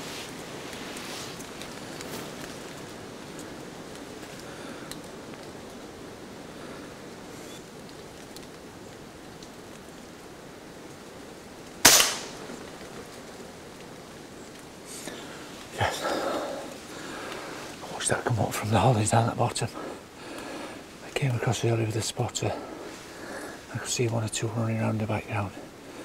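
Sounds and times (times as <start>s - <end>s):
steady rain: 0.0s - 26.0s
air rifle shot crack: 11.8s - 12.6s.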